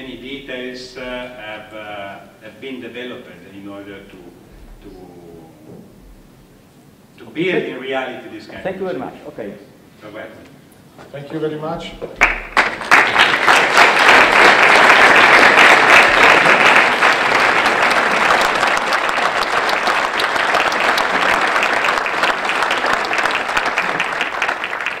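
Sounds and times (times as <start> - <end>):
audience applauding: 12.2 - 25.0.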